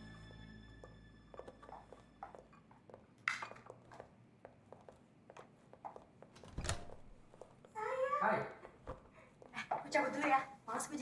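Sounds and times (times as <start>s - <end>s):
light footsteps: 0.7s - 7.8s.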